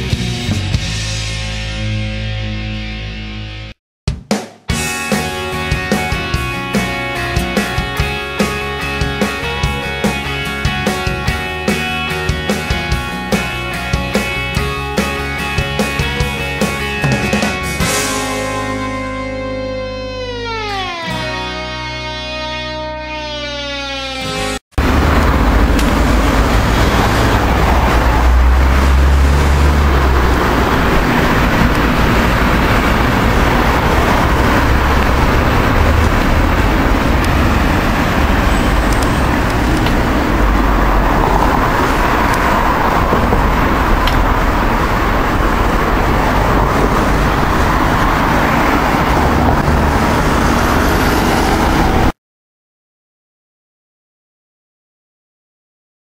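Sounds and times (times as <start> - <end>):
city street traffic: 4.7 - 52.2
wind rumble on microphone: 24.8 - 52.1.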